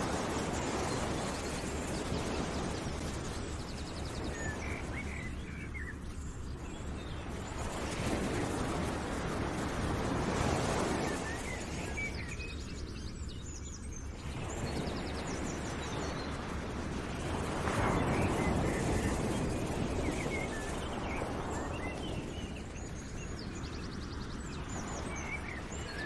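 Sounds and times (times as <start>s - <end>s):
steady rushing noise: 0.0s - 13.3s
small birds chirping and trilling: 0.6s - 8.5s, 10.4s - 16.5s.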